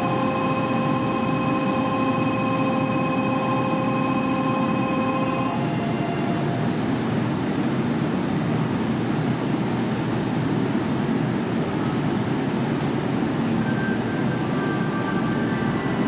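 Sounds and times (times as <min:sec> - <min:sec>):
electric train humming: 0:00.0 - 0:07.7, 0:13.4 - 0:16.0.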